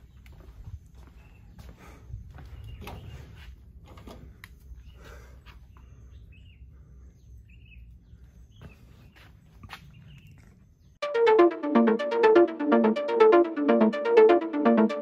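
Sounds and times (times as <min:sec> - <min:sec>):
footsteps on stone tiles: 0:00.0 - 0:04.4, 0:08.5 - 0:10.2.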